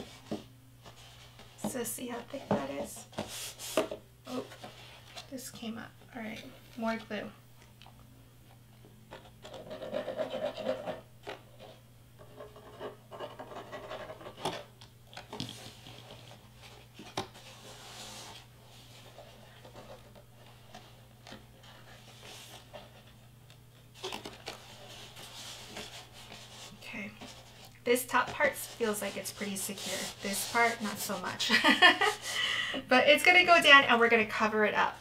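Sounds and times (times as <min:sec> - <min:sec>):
paper scraping and rustling: 0:09.1 - 0:23.2, 0:23.9 - 0:32.2.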